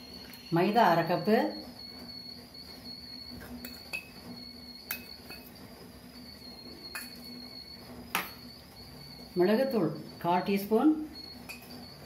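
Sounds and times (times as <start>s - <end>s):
thin high-pitched tone: 2.9s - 12.0s.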